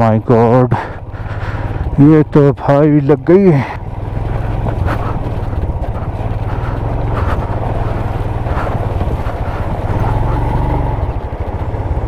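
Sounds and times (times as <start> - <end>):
rushing stream water: 3.4 - 11.6
motorcycle engine thumping at low revs: 3.8 - 12.0.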